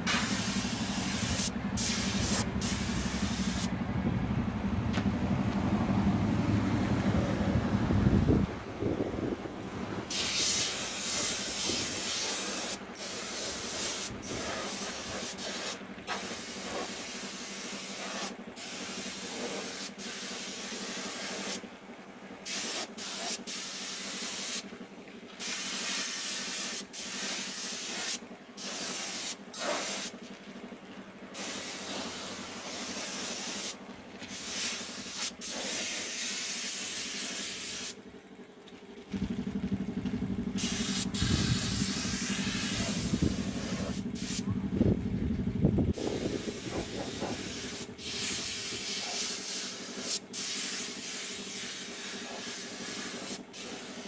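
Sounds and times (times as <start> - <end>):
spray gun hissing: 0.0 - 3.7, 10.1 - 21.6, 22.4 - 24.6, 25.4 - 30.1, 31.4 - 38.0, 40.6 - 44.4, 46.0 - 54.0.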